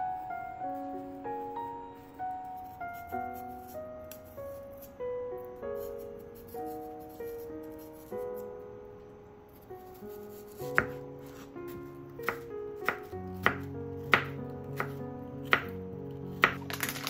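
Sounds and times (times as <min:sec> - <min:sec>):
background music: 0:00.0 - 0:08.7, 0:09.8 - 0:17.0
knife chopping on wooden board: 0:10.4 - 0:15.7.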